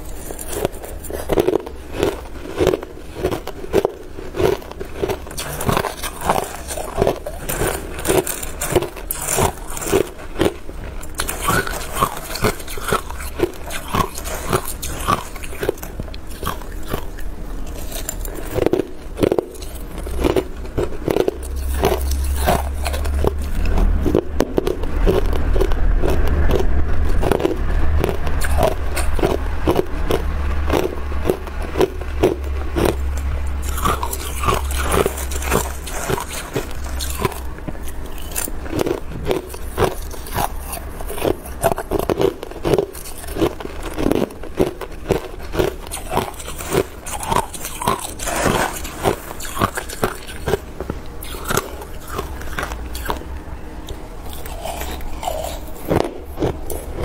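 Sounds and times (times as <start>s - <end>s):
metal spoon scraping ice: 0.0s - 3.5s, 4.8s - 17.0s, 17.6s - 18.7s, 19.5s - 23.7s, 33.6s - 38.9s, 45.4s - 50.6s
ice crunched between teeth: 0.0s - 53.3s, 53.9s - 57.0s
low rumble: 14.2s - 41.8s.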